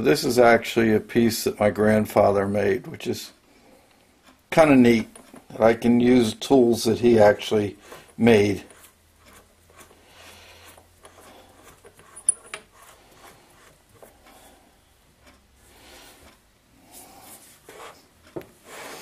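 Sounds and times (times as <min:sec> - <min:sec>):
hands rubbing metal: 0:07.8 - 0:14.2.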